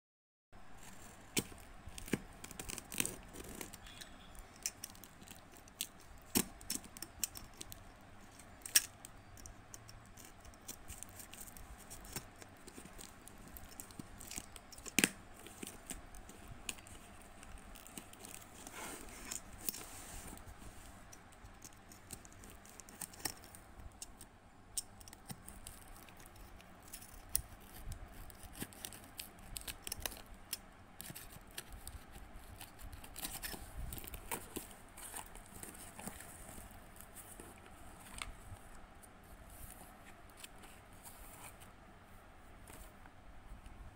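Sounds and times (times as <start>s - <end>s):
scissors cutting packing tape: 1.4s - 19.8s, 21.5s - 36.1s.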